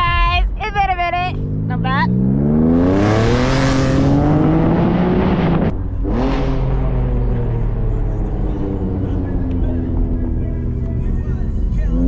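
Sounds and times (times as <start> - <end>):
car engine accelerating hard: 1.3 - 12.0.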